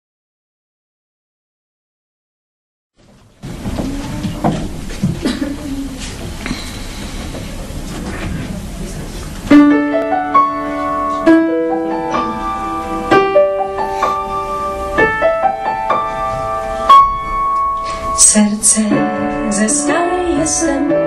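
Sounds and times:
room noise: 0:03.0 - 0:21.0
slow piano playing: 0:08.6 - 0:21.0.

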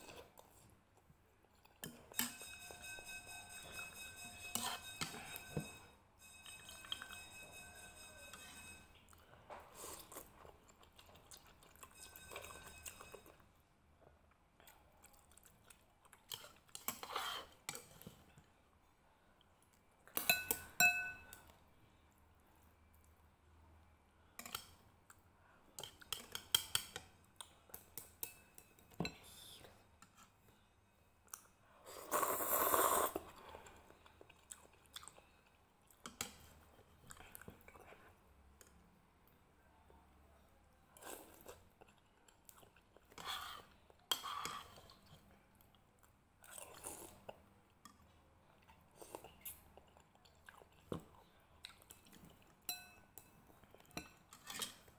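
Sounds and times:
chopsticks clinking on ceramic bowl: 0:01.8 - 0:08.8, 0:20.2 - 0:21.4, 0:52.7 - 0:54.8
chewing: 0:09.0 - 0:13.4, 0:14.6 - 0:18.4, 0:32.1 - 0:38.2, 0:41.0 - 0:54.9
slurping noodles: 0:31.9 - 0:33.4.

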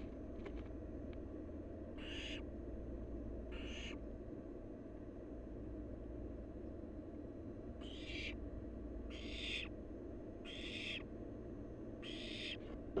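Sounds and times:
low camera hum: 0:00.0 - 0:01.8
owl chick hissing calls: 0:02.0 - 0:02.4, 0:03.5 - 0:04.0, 0:07.8 - 0:08.4, 0:09.1 - 0:09.7, 0:10.4 - 0:11.0, 0:12.0 - 0:12.6.

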